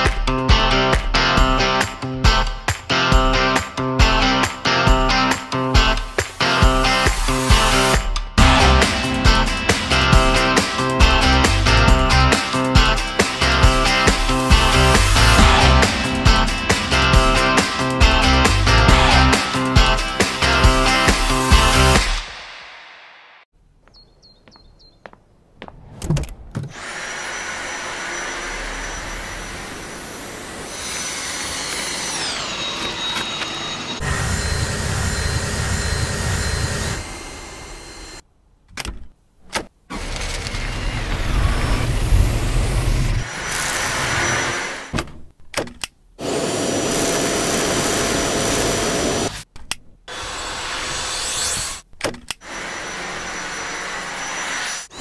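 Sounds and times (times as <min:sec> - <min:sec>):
vacuum motor whining: 0:26.7 - 0:38.2, 0:46.2 - 0:49.4.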